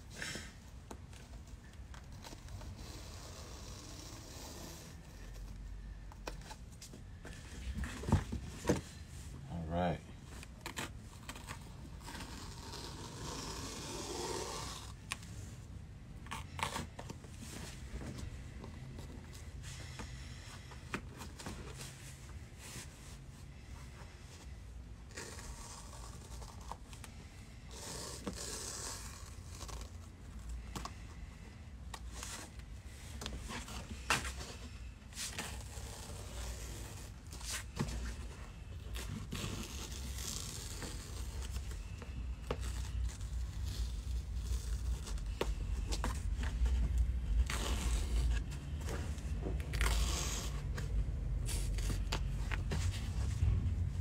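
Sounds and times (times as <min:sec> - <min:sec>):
fabric scraping and tearing: 0:02.0 - 0:05.5, 0:10.6 - 0:15.2, 0:27.6 - 0:30.7, 0:35.1 - 0:54.0
low rumble: 0:50.7 - 0:54.0.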